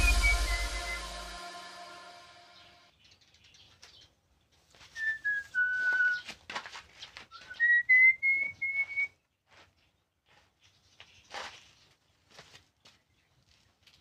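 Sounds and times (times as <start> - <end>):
person whistling a tune: 0.0 - 2.2.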